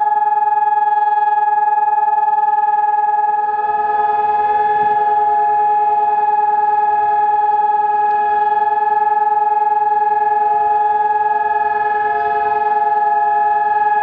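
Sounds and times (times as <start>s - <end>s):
siren steady tone: 0.0s - 14.0s.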